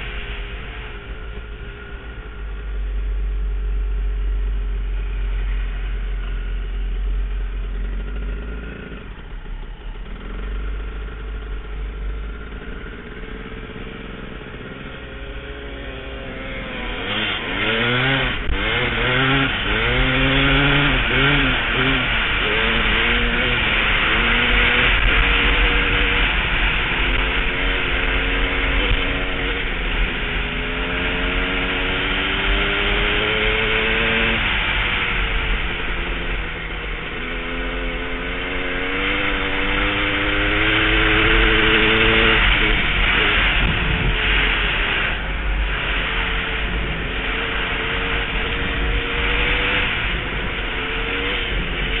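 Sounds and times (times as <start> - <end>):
dirt bike engine revving: 4.1 - 52.0
wind noise on microphone: 16.8 - 52.0
wind on microphone: 38.4 - 52.0.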